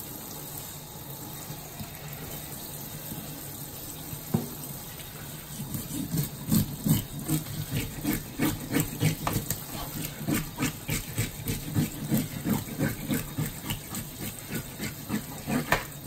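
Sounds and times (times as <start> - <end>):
tap water running into sink: 0.1 - 5.4, 12.0 - 16.0.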